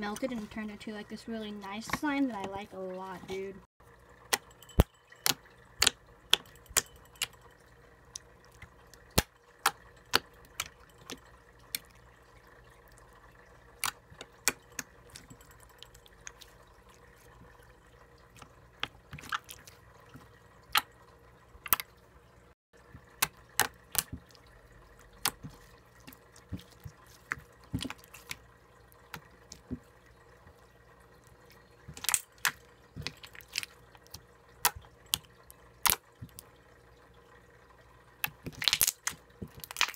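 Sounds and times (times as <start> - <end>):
slime clicking and popping: 4.3 - 6.8, 38.2 - 39.9.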